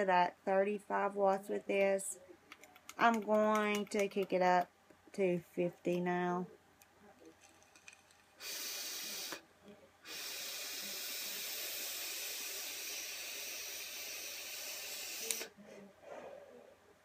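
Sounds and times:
vape drag hiss: 0:08.4 - 0:09.4, 0:10.0 - 0:15.6
soft breathy sounds: 0:08.4 - 0:17.0.

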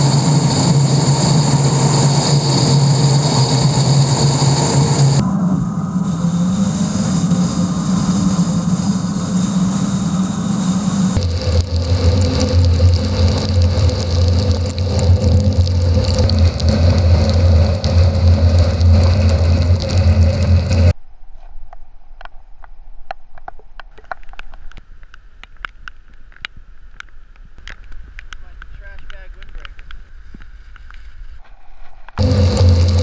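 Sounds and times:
car engine and road noise: 0:00.0 - 0:21.0, 0:32.2 - 0:33.0.

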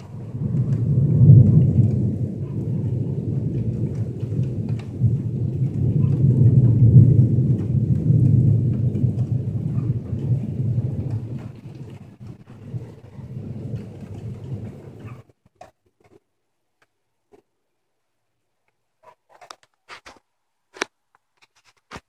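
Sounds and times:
rolling thunder rumble: 0:00.0 - 0:15.4
raindrops ticking: 0:00.0 - 0:17.8.

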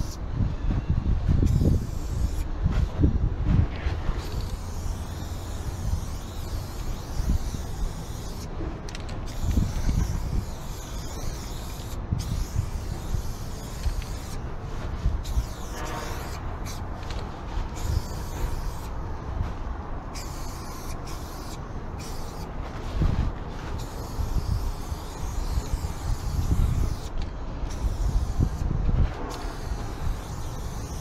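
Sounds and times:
spray paint can hissing: 0:00.0 - 0:00.2, 0:01.4 - 0:03.0, 0:04.2 - 0:14.4, 0:15.2 - 0:19.0, 0:20.1 - 0:22.5, 0:23.8 - 0:31.0
steady low rumble: 0:00.0 - 0:31.0.

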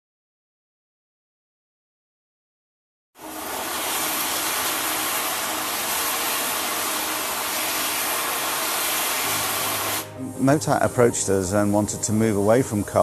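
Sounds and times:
steam tram hissing steam: 0:03.2 - 0:13.0.

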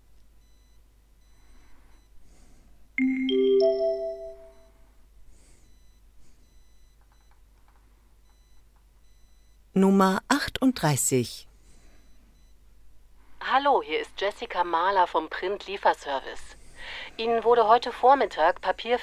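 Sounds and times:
faint background noise: 0:00.0 - 0:19.0
three-note rising chime: 0:03.0 - 0:04.7.

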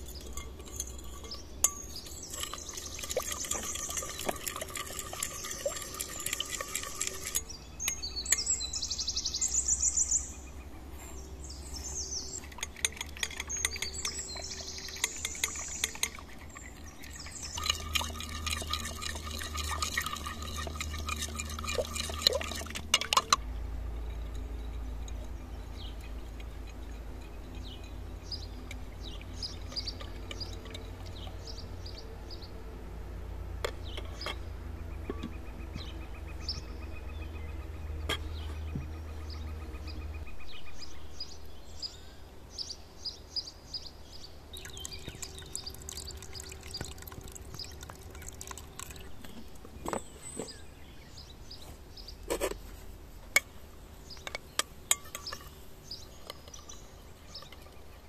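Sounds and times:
metal spoon clinking against glass: 0:00.0 - 0:08.7, 0:12.3 - 0:16.3, 0:24.0 - 0:31.5, 0:54.2 - 0:55.6
birds singing: 0:00.0 - 0:58.0
liquid swishing: 0:02.0 - 0:07.5, 0:12.4 - 0:23.4.

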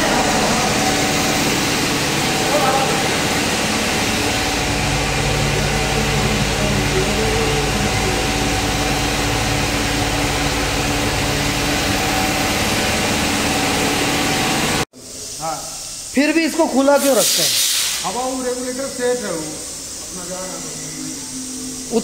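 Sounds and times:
low motor hum: 0:00.0 - 0:14.8, 0:20.3 - 0:22.0.

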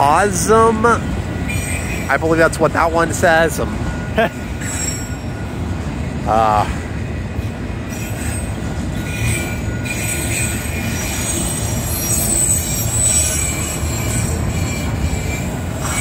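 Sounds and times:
train wheels rumbling on rail: 0:00.0 - 0:16.0
high-pitched wheel squeal: 0:01.5 - 0:02.1, 0:07.9 - 0:16.0.

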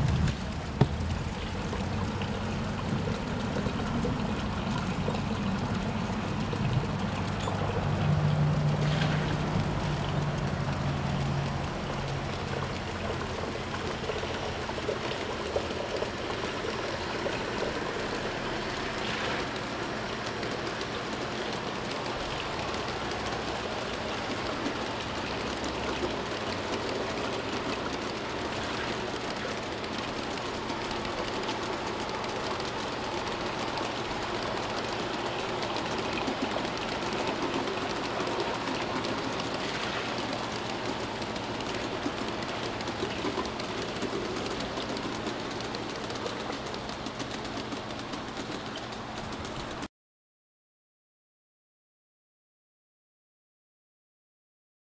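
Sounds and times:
locomotive hum: 0:00.0 - 0:49.9
model train wheels clattering: 0:08.9 - 0:49.9.

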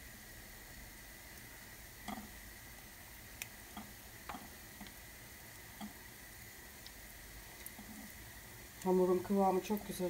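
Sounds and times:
wet batter squelches: 0:03.2 - 0:10.0.

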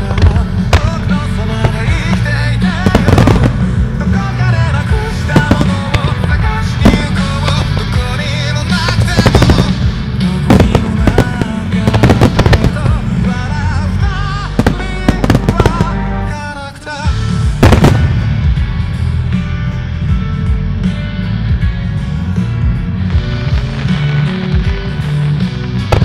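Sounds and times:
fireworks bursting with sharp bangs: 0:00.0 - 0:19.1, 0:23.0 - 0:26.0
loud song: 0:00.0 - 0:20.3.

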